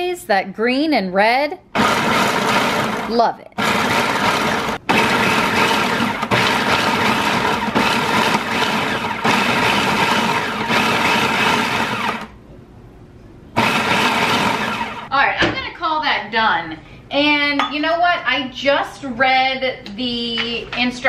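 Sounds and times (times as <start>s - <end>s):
food processor chopping: 1.8s - 12.3s, 13.6s - 15.1s.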